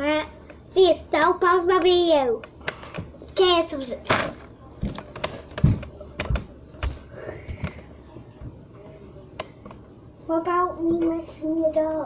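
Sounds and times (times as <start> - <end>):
objects clicking and thumping: 4.0 - 7.8.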